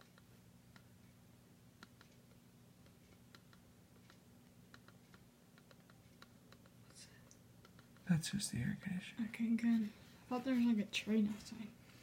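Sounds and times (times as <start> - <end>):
air conditioner hum: 0.0 - 12.0
faint clicks: 1.8 - 8.1.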